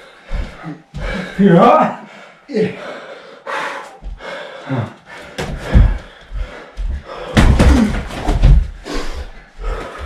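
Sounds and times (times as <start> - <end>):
boxing gloves thudding: 7.3 - 8.7.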